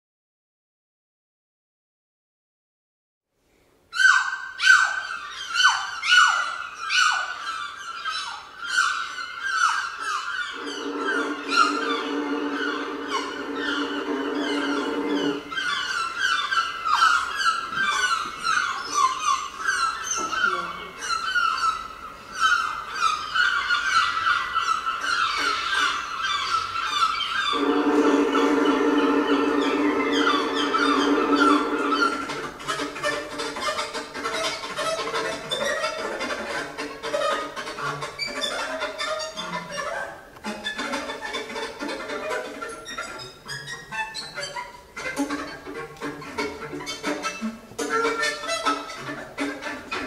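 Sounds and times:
birds chirping: 0:04.0 - 0:50.0
bird-like cries sliding down: 0:10.0 - 0:19.2.

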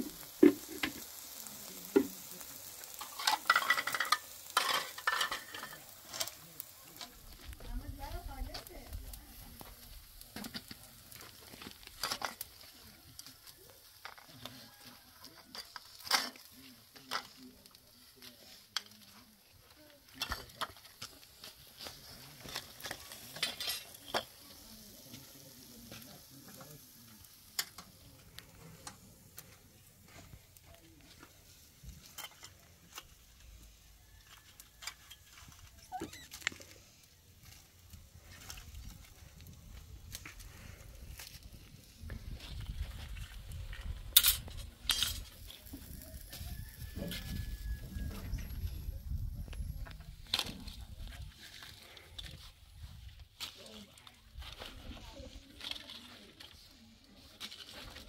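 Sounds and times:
soft sizzling hiss: 0:00.0 - 0:46.8
metal skewers clinking and scraping: 0:00.1 - 0:07.5, 0:15.3 - 0:17.8, 0:20.1 - 0:25.3, 0:31.1 - 0:36.8, 0:42.4 - 0:46.0.

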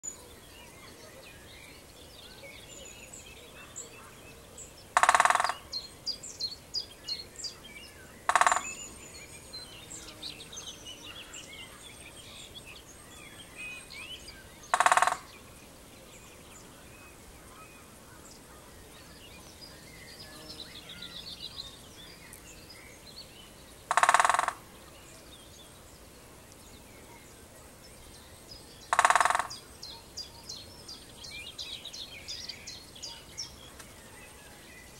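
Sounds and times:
small birds chirping: 0:00.0 - 0:34.9
woodpecker drumming on wood: 0:05.0 - 0:05.6, 0:08.3 - 0:08.8, 0:14.7 - 0:15.3, 0:23.9 - 0:24.6, 0:28.9 - 0:29.5.

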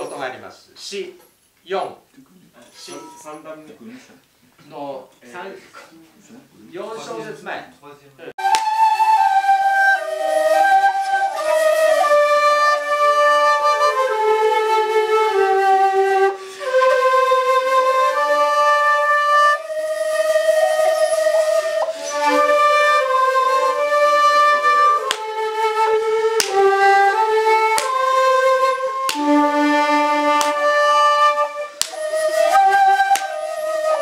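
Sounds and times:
bamboo flute slow melody: 0:08.4 - 0:34.0.

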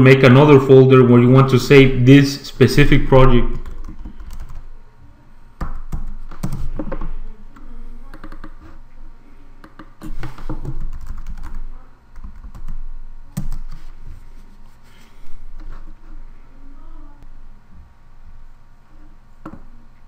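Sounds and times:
typing on a keyboard: 0:03.6 - 0:04.6, 0:05.9 - 0:06.7, 0:09.7 - 0:11.6, 0:12.2 - 0:12.8, 0:13.4 - 0:13.8.

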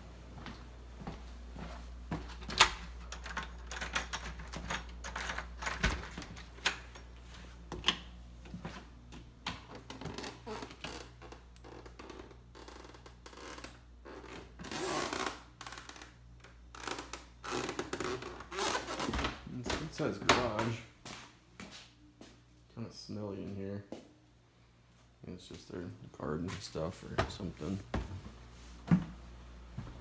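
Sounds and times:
footsteps: 0:00.3 - 0:02.5, 0:18.6 - 0:22.4, 0:25.4 - 0:29.2.

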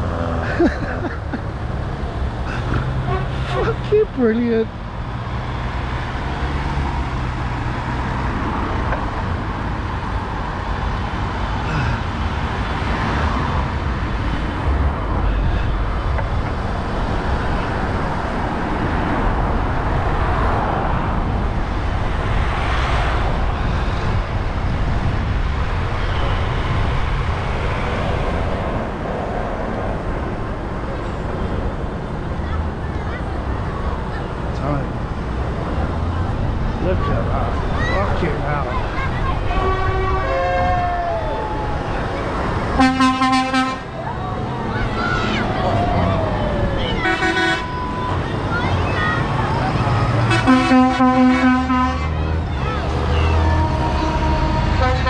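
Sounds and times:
tractor engine rumbling: 0:00.0 - 0:22.6, 0:23.2 - 0:55.0
road and traffic noise: 0:00.0 - 0:55.0.

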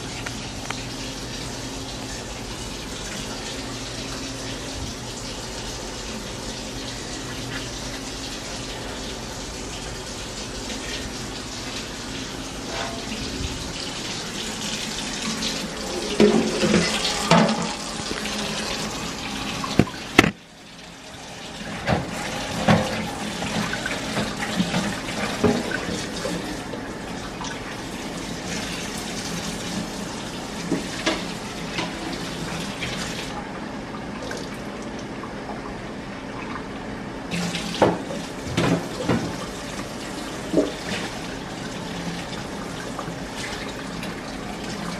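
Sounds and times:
faucet running into sink: 0:00.0 - 0:33.4.

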